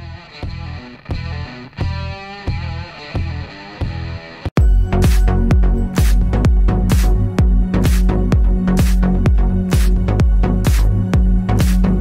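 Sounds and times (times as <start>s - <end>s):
kick drum: 4.6s - 12.0s.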